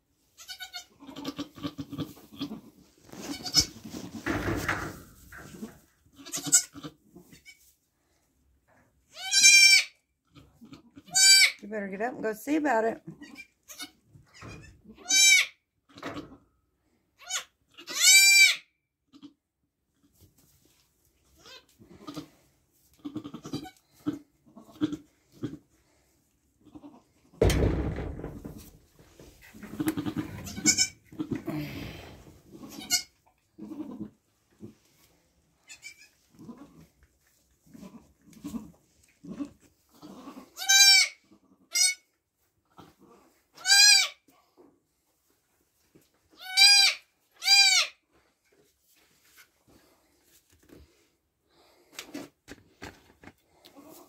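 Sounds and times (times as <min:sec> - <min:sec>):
goat bleating: 0:00.4 - 0:03.8, 0:06.2 - 0:07.6, 0:09.1 - 0:11.6, 0:13.1 - 0:14.0, 0:14.6 - 0:15.6, 0:17.2 - 0:18.6, 0:23.0 - 0:25.6, 0:29.7 - 0:31.5, 0:32.5 - 0:34.1, 0:35.7 - 0:36.8, 0:37.7 - 0:42.1, 0:43.6 - 0:44.2, 0:46.4 - 0:48.0
goats bleating: 0:06.2 - 0:06.9.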